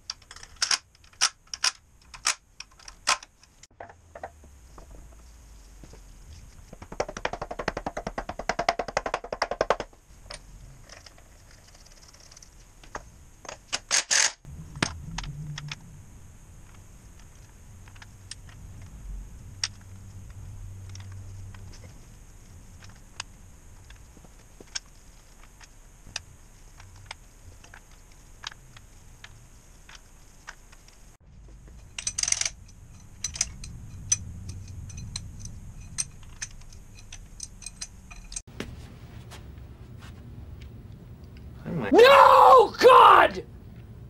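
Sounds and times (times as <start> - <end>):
metal engine parts clicking: 31.6 - 38.5.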